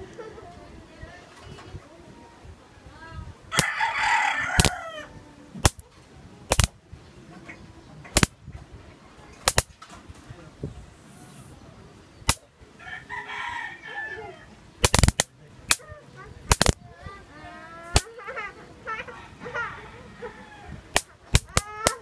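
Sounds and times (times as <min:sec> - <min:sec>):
rooster crowing: 0:03.5 - 0:05.2, 0:12.8 - 0:14.6, 0:19.0 - 0:20.9
high-voltage sparks snapping: 0:04.6 - 0:04.8, 0:05.6 - 0:05.8, 0:06.5 - 0:06.8, 0:08.1 - 0:08.4, 0:09.4 - 0:09.9, 0:12.2 - 0:12.5, 0:14.8 - 0:15.8, 0:16.4 - 0:16.8, 0:17.9 - 0:18.2, 0:20.9 - 0:22.0.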